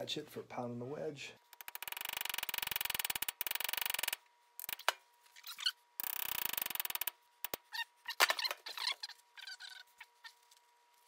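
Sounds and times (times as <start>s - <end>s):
high squeaky chirps: 1.8s - 10.4s.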